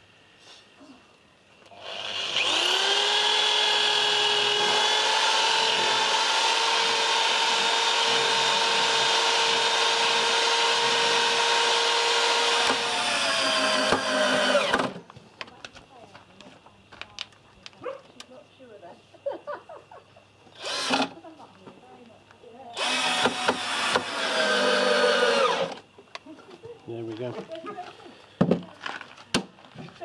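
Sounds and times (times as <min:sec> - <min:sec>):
electric drill drilling wood: 0:01.7 - 0:15.0, 0:20.6 - 0:21.2, 0:22.8 - 0:25.8.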